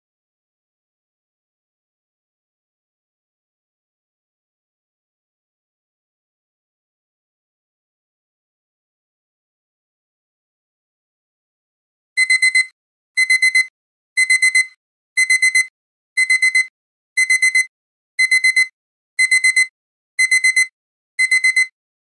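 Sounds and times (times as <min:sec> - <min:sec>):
digital alarm clock beeping: 0:12.2 - 0:21.7.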